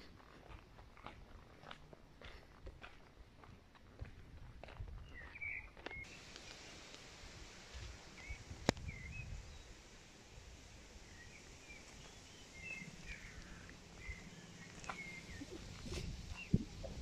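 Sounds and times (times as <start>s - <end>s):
small birds chirping: 5.0s - 7.1s, 8.0s - 10.0s, 10.8s - 17.0s.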